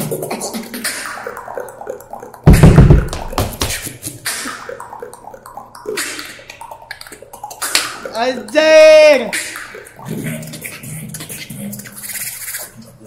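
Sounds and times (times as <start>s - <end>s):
beatboxing: 0.0s - 13.0s.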